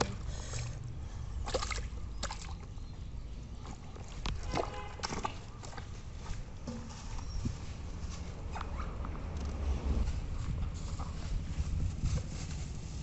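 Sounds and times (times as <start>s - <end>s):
mud and water squelching: 0.0s - 9.1s
sharp wet slaps: 1.4s - 2.7s, 3.6s - 5.9s.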